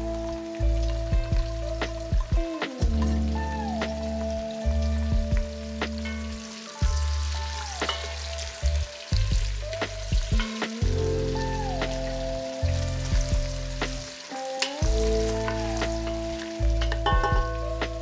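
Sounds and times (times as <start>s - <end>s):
soft background music: 0.0s - 18.0s
vegetables sizzling in oil: 0.0s - 18.0s
wooden spoon knocking on pot: 16.8s - 17.6s.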